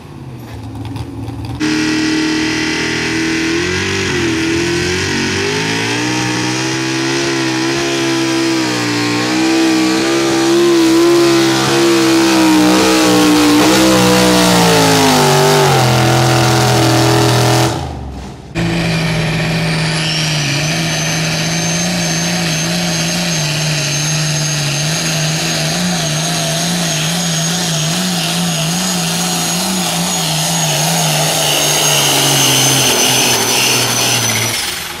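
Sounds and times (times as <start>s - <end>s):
tractor engine at full power: 0.0s - 35.0s
truck engine running hard: 0.0s - 35.0s
high steady whine: 1.6s - 15.9s.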